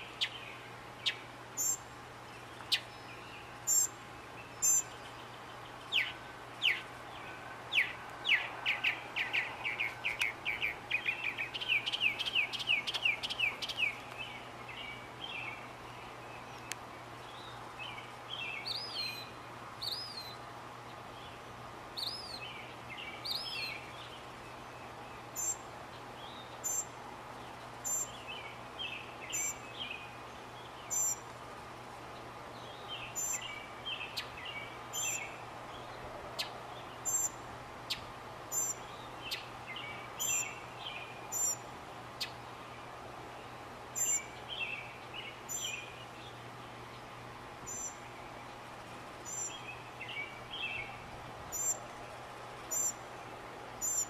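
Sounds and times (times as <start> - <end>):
mockingbird singing: 0.0 - 1.8, 2.4 - 15.7, 27.8 - 31.2, 32.6 - 35.4, 36.4 - 41.6, 44.0 - 46.4, 47.7 - 48.4, 49.3 - 51.8, 52.7 - 53.0, 53.8 - 54.0
faint hiss: 0.0 - 54.0.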